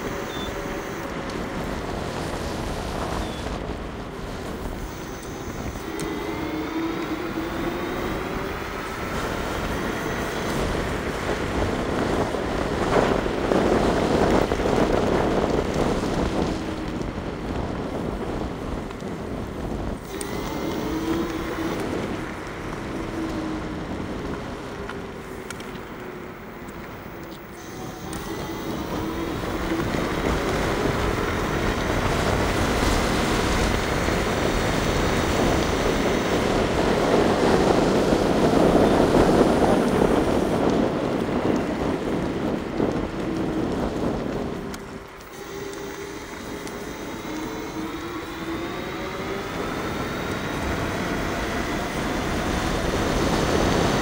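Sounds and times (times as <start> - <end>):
electric scooter motor whine: 0.0 - 54.0
wind rushing on microphone: 0.0 - 54.0.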